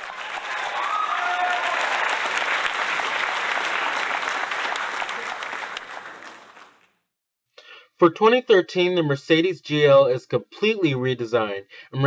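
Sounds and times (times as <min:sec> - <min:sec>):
crowd applauding: 0:00.0 - 0:06.9.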